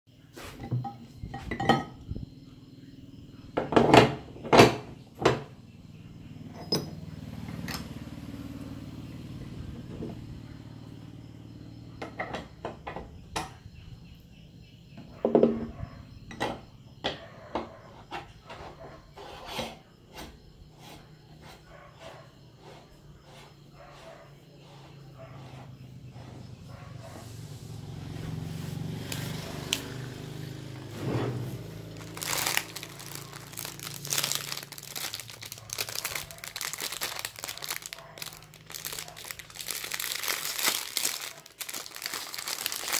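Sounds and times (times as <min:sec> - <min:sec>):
metal parts clinking and knocking: 0:06.6 - 0:07.0.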